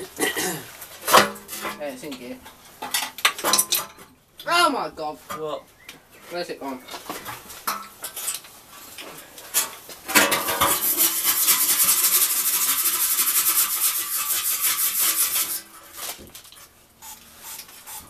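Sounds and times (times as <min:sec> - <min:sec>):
wire brush scrubbing metal: 0:10.4 - 0:16.2, 0:17.0 - 0:18.0.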